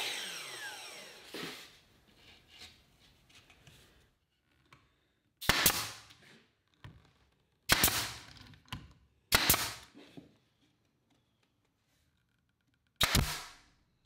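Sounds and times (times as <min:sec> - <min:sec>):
nail gun firing: 0:05.4 - 0:06.1, 0:07.7 - 0:08.3, 0:09.3 - 0:09.9, 0:13.0 - 0:13.7.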